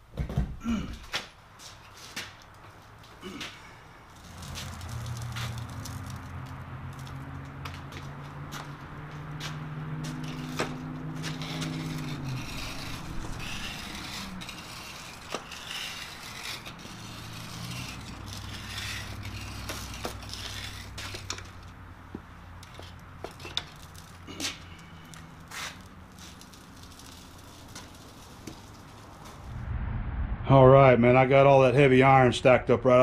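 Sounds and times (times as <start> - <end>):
hand truck rolling over concrete: 1.1 - 29.5
metal and wood scraping and clanking: 1.2 - 29.5
low hum: 29.0 - 32.9.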